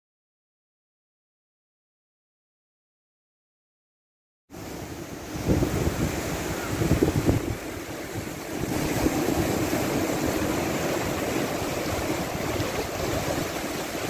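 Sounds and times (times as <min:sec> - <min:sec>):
surf breaking on beach: 0:04.6 - 0:14.0
wind buffeting microphone: 0:04.8 - 0:14.0.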